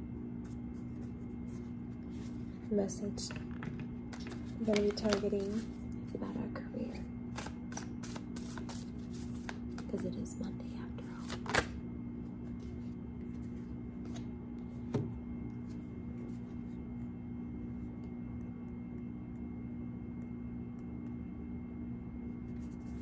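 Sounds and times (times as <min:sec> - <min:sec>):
low hum: 0:00.0 - 0:23.0
cards sliding and rubbing: 0:00.4 - 0:02.6, 0:04.1 - 0:05.8, 0:07.3 - 0:09.9, 0:12.4 - 0:14.7.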